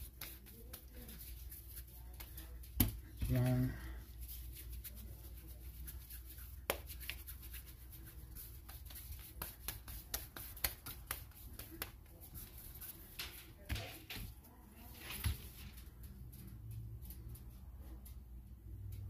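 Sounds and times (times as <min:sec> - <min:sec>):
hands patting dough on board: 0:00.0 - 0:12.9.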